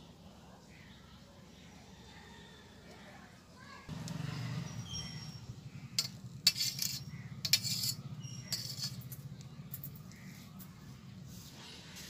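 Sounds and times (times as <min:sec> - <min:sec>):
steel spoon scraping a steel plate: 0:04.8 - 0:09.3.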